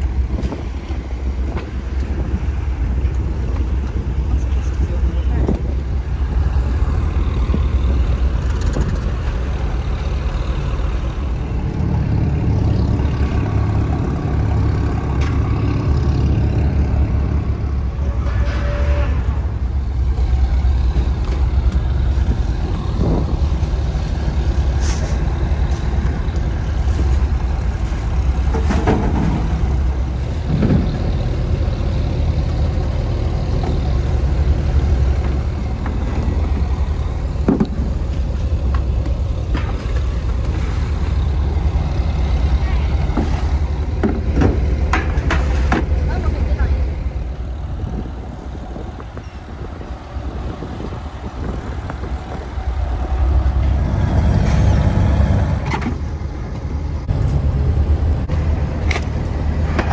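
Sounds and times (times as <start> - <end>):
diesel engines idling: 0.0 - 59.9
fish crates knocking and clattering: 28.4 - 29.8, 44.0 - 46.0.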